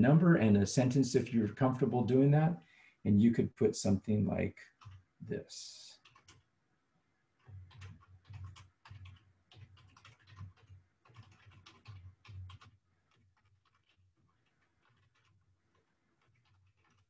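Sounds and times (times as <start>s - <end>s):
computer keyboard typing: 4.7s - 5.1s, 6.0s - 6.5s, 7.4s - 17.0s.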